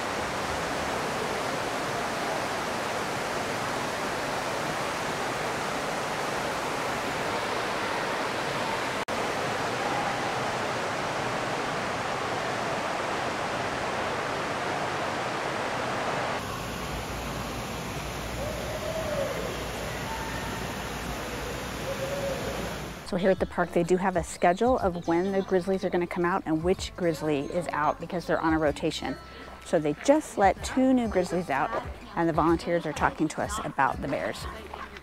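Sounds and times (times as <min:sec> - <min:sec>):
running water rushing: 0:00.0 - 0:23.1.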